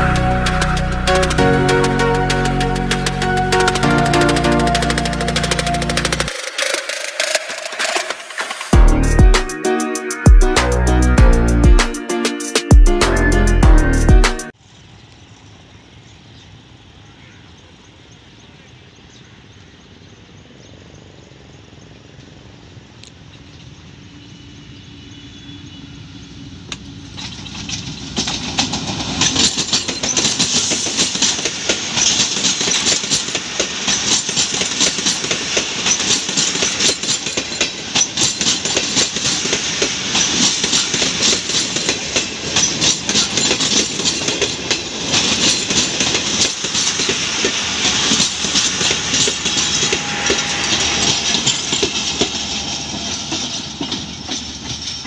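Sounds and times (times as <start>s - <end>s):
diesel locomotive passing: 0.0s - 18.7s, 20.2s - 55.0s
train wheels clacking over rail joints: 26.7s - 55.0s.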